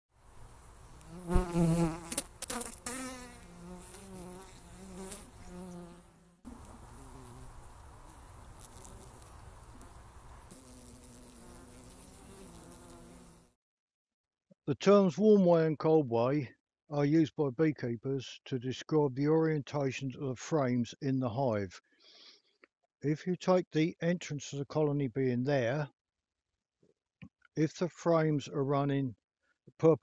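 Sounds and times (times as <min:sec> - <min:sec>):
honeybees buzzing: 0:00.5 - 0:13.6.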